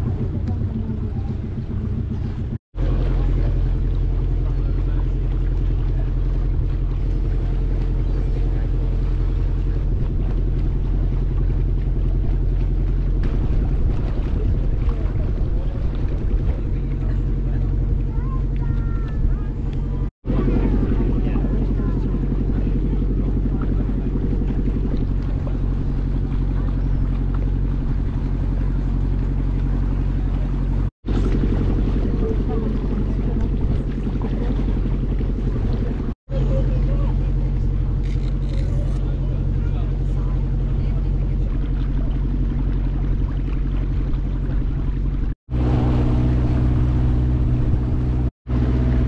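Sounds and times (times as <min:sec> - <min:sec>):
boat engine droning: 0:00.0 - 0:49.0.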